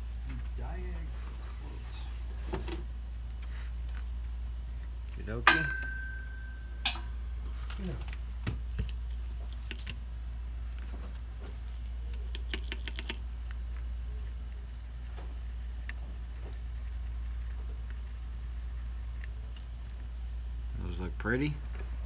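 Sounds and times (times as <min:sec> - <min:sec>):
steady low hum: 0:00.0 - 0:22.0
hand rubbing circuit board: 0:11.2 - 0:19.9.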